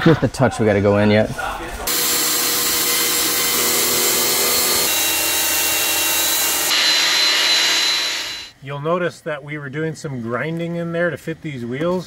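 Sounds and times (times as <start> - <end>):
angle grinder grinding metal: 1.9 - 8.6.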